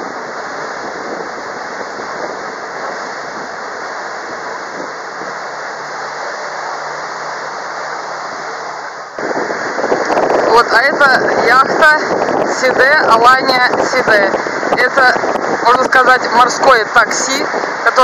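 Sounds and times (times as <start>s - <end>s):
low engine drone: 0.0s - 18.0s
rush of wind and water: 0.0s - 18.0s.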